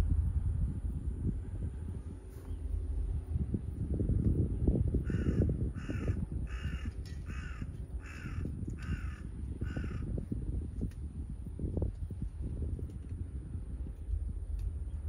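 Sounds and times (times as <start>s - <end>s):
continuous low rumble: 0.0s - 15.0s
bird calling: 5.1s - 10.1s.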